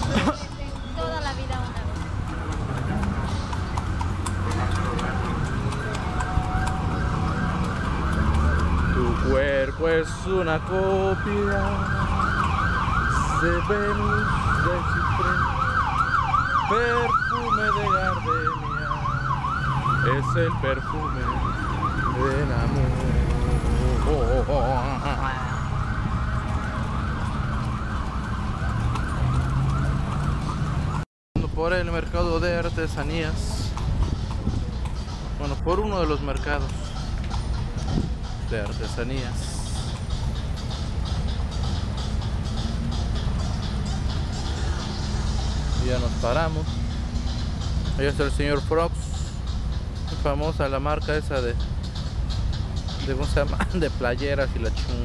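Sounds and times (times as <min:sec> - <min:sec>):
street traffic rumble: 0:00.0 - 0:55.0
emergency siren yelping: 0:04.8 - 0:24.5, 0:25.1 - 0:31.0.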